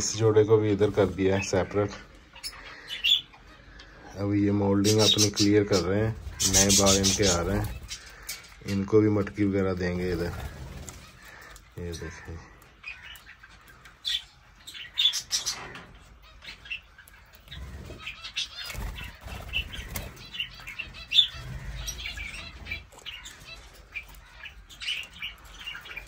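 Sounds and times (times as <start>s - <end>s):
parrots chirping: 0.0s - 8.8s, 9.7s - 26.0s
wings flapping: 10.0s - 11.4s, 17.5s - 20.5s.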